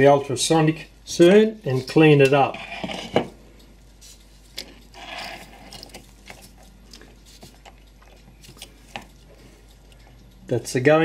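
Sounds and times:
clock parts clicking and tapping: 0:03.6 - 0:11.0.

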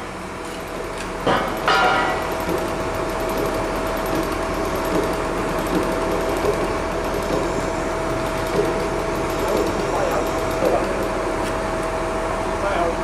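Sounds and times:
mechanical hum: 0:00.0 - 0:13.0
knocks on steel sculpture: 0:01.3 - 0:02.7.

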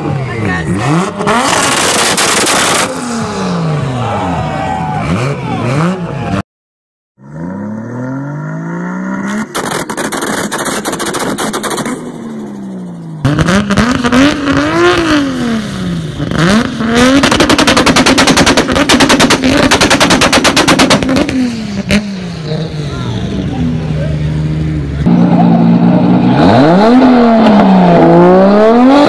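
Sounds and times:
car engines revving hard: 0:00.0 - 0:06.4, 0:07.2 - 0:29.0
exhaust pops: 0:09.4 - 0:12.0.

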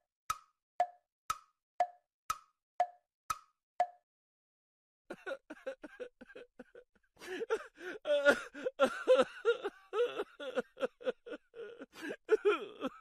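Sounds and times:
high-pitched giggling laughter: 0:05.1 - 0:07.0.

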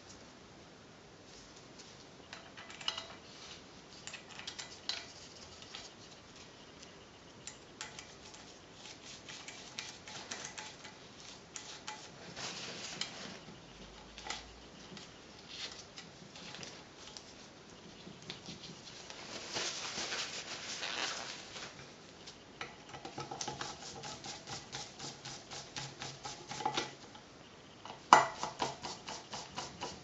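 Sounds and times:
screws clinking on metal: 0:02.3 - 0:03.2.

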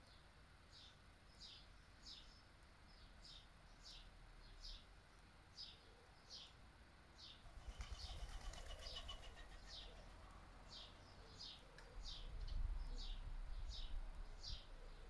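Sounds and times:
high bird trill: 0:07.6 - 0:10.2
wind rumbling on microphone: 0:12.1 - 0:14.7.

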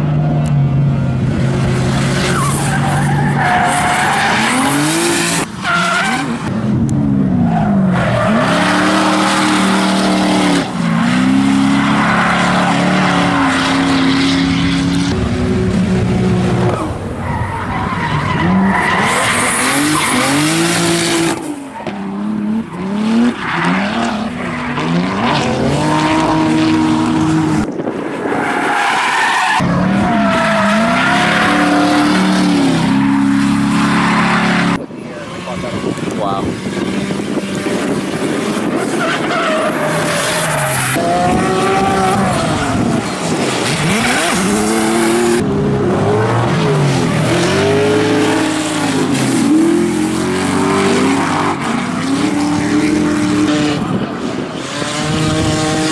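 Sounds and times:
car engines revving: 0:00.0 - 0:55.9
tyres squealing in wheelspin: 0:02.0 - 0:06.5, 0:16.7 - 0:27.4, 0:28.2 - 0:45.4.

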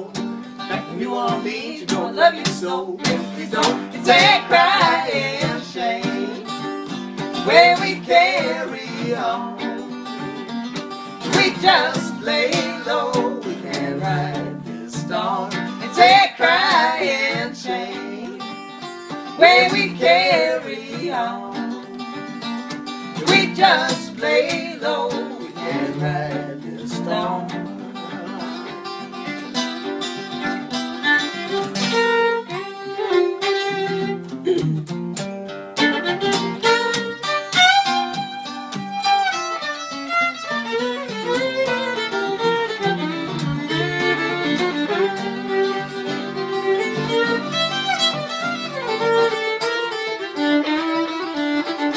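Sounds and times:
woman and man singing: 0:00.0 - 0:10.4, 0:11.1 - 0:28.6
fiddle: 0:00.0 - 0:51.9
guitar: 0:00.0 - 0:51.9.

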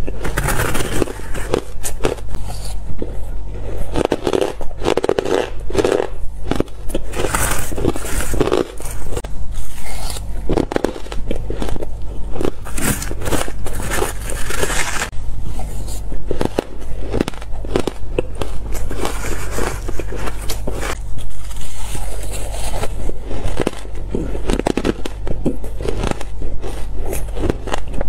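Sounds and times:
chewing shaved ice: 0:00.0 - 0:28.0
metal spoon scraping ice: 0:00.2 - 0:02.9, 0:03.8 - 0:11.8, 0:12.6 - 0:17.2.

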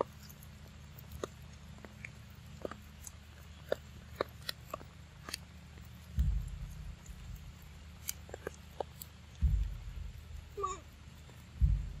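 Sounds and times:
crisp chewing clicks: 0:00.0 - 0:11.6
low thump: 0:06.2 - 0:07.6, 0:09.4 - 0:10.6, 0:11.6 - 0:12.0.

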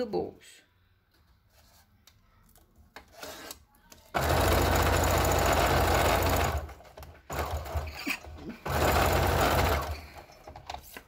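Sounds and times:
sewing machine stitching: 0:03.1 - 0:10.9.

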